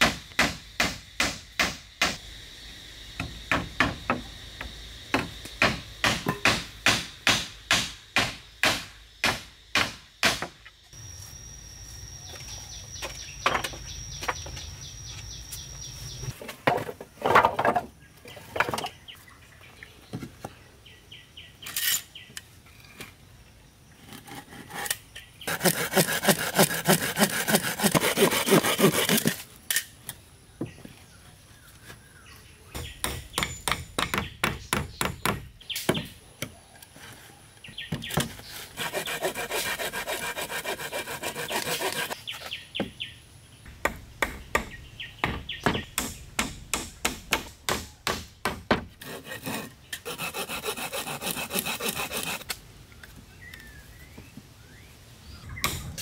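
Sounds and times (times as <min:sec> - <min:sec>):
steady high whine: 0:11.0 - 0:12.9
sawing strokes: 0:24.2 - 0:29.4, 0:38.5 - 0:42.2, 0:49.0 - 0:52.5.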